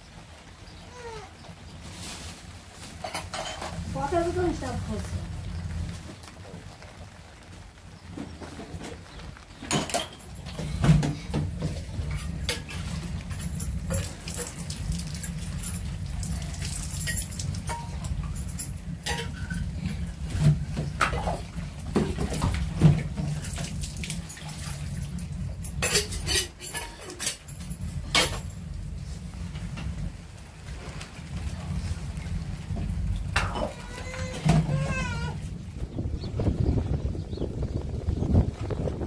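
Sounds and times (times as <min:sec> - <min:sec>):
steady low rumble: 0:03.7 - 0:08.0, 0:27.5 - 0:34.0, 0:35.0 - 0:39.0
water poured into metal kettle: 0:12.1 - 0:28.6.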